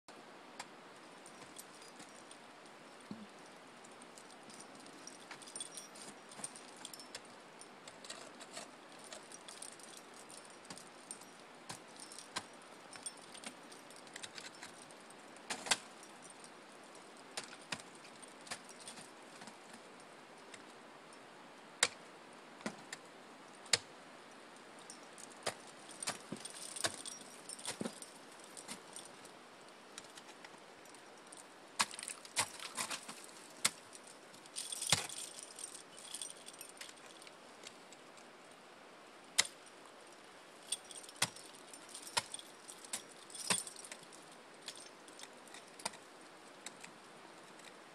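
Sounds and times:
climbing gear clinking and jingling: 0.6 - 21.2, 22.7 - 38.7, 39.3 - 47.9
ice axe striking ice: 31.8 - 33.8, 34.8 - 35.2.

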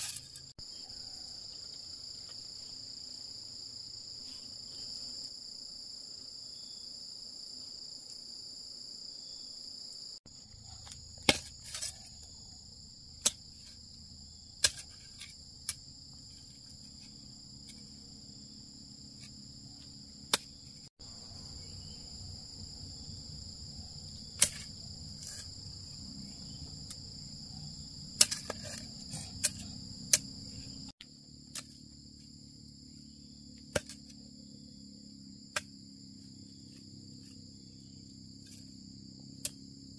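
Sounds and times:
insects chirring: 0.0 - 39.9
hand hoe striking soil: 10.8 - 12.2, 13.2 - 13.8, 14.6 - 17.9, 20.3 - 20.8, 24.3 - 25.6, 28.2 - 30.4, 31.0 - 31.8, 33.7 - 34.1.

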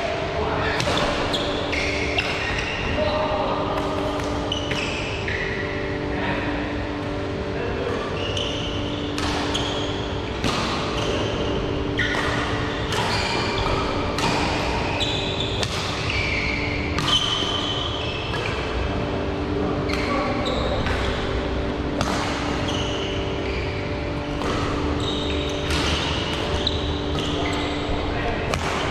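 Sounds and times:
shoes squeaking on court: 0.8 - 2.8, 4.2 - 5.8, 8.0 - 18.7, 22.3 - 28.1
rackets hitting shuttlecock: 9.1 - 9.6, 10.4 - 11.2, 12.0 - 17.6, 20.8 - 21.3, 21.9 - 22.7, 24.3 - 27.6, 28.5 - 28.9.

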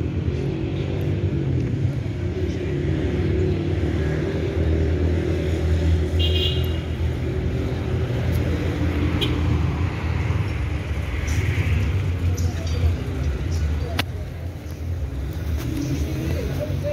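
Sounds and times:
cars driving past: 0.0 - 16.9.

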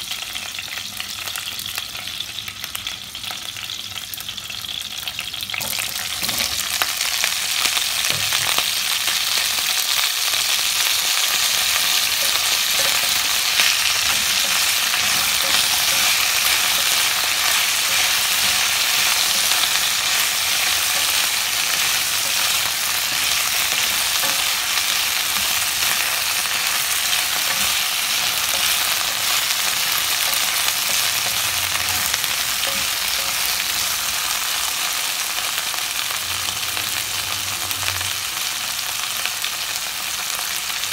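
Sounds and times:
vegetables sizzling in oil: 0.0 - 40.9
wooden spatula stirring: 11.3 - 33.4.

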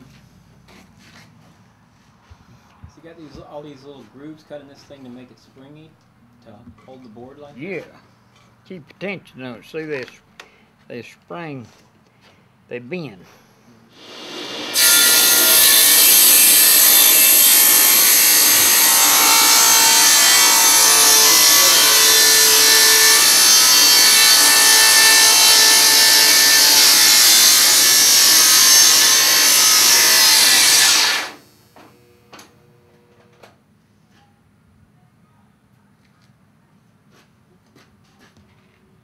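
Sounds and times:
table saw cutting wood: 14.0 - 31.5.

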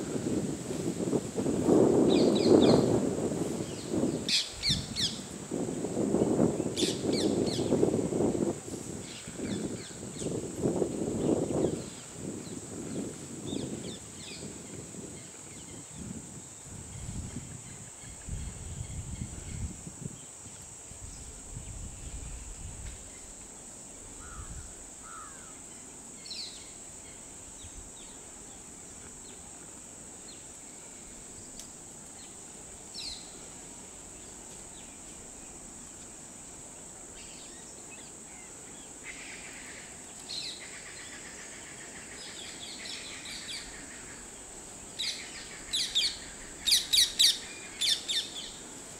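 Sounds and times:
high insect drone: 0.0 - 48.9
low rustling noise: 0.0 - 48.9.

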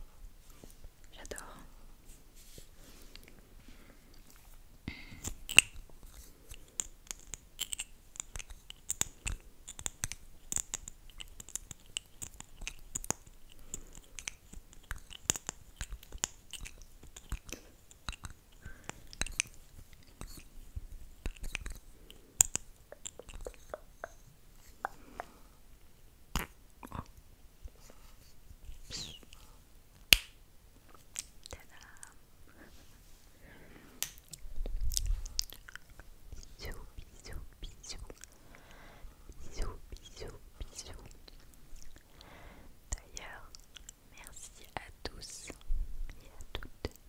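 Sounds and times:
wet lip smacking: 5.0 - 25.4, 34.0 - 38.4.

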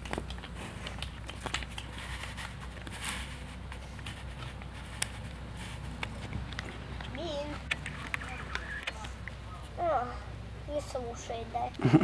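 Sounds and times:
puppy gnawing on wooden stick: 0.0 - 9.4.

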